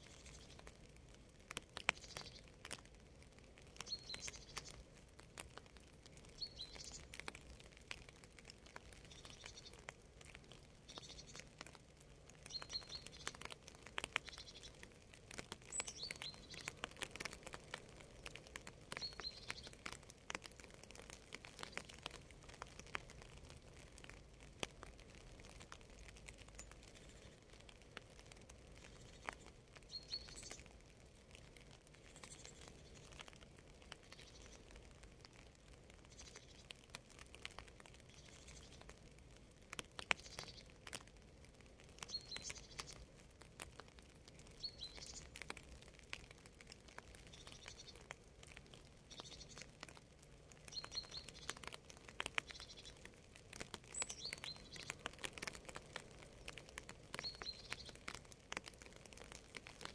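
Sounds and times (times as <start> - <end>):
rain pattering and dripping: 0.0 - 59.9
bird chirping: 1.9 - 2.5, 3.8 - 4.8, 6.3 - 7.2, 9.0 - 9.8, 10.8 - 11.4, 12.4 - 13.5, 14.1 - 14.8, 15.7 - 16.8, 18.9 - 19.8, 28.8 - 30.7, 44.6 - 45.3, 49.1 - 49.6, 50.7 - 51.7, 52.4 - 53.0, 53.9 - 55.0, 57.2 - 58.0.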